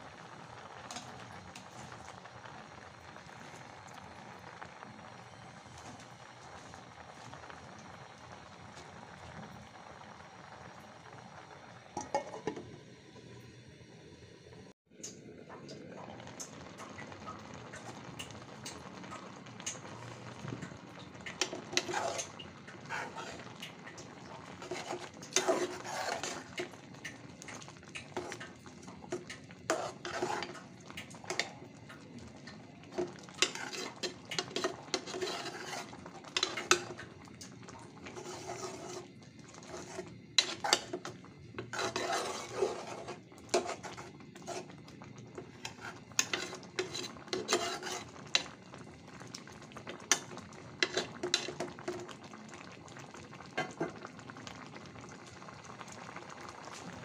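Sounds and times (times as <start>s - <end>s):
spoon scraping metal pot: 12.0s - 12.6s, 21.4s - 23.5s, 24.6s - 26.8s, 28.1s - 28.4s, 29.1s - 30.6s, 31.3s - 31.5s, 33.0s - 37.0s, 38.0s - 44.8s, 45.4s - 48.6s, 50.1s - 51.7s.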